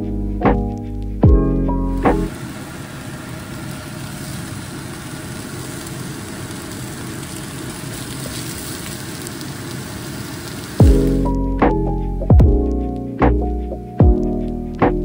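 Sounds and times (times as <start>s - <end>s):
food sizzling in a wok: 1.9s - 11.6s.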